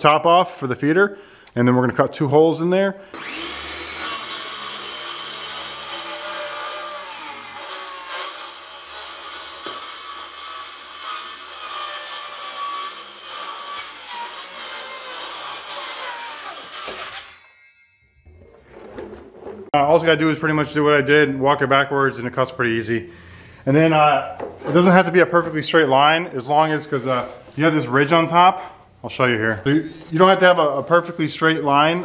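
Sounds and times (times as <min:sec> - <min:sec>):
circular saw cutting plastic: 0:03.1 - 0:17.5.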